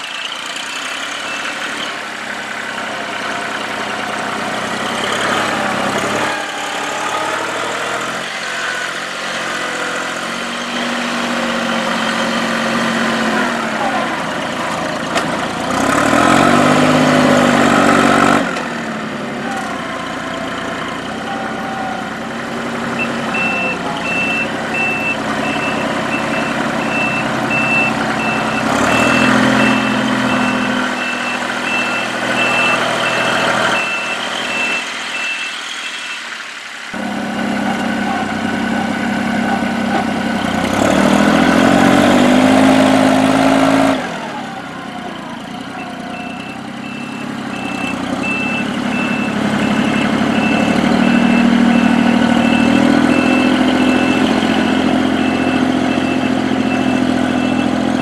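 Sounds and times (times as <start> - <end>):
diesel engine revving: 0.0 - 58.0
reverse alarm beeping: 22.8 - 36.4, 45.7 - 58.0.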